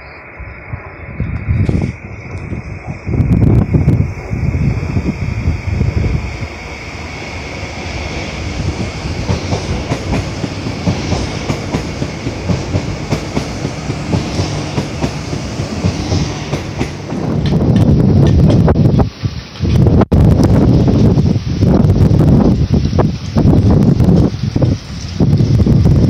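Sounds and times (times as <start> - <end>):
train rumbling past: 0.0 - 26.0
wind buffeting microphone: 0.4 - 26.0
train wheels clickety-clack: 7.9 - 19.9.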